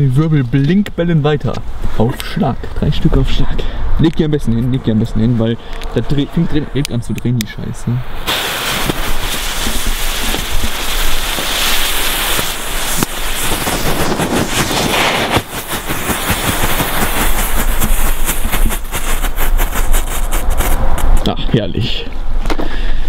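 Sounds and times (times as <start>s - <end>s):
fireworks hissing and popping: 8.0s - 21.3s.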